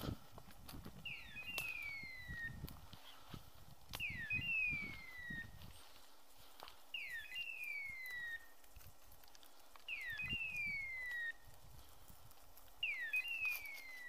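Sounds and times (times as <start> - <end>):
beeper collar hawk-scream signal: 1.0 - 2.6, 4.0 - 5.5.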